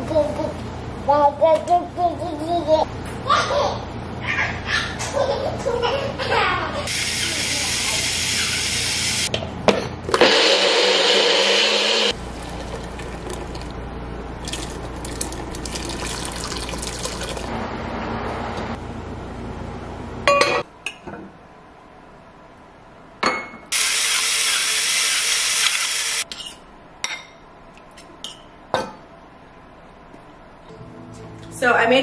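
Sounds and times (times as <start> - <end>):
liquid pouring into pot: 12.2 - 13.8, 14.4 - 17.5.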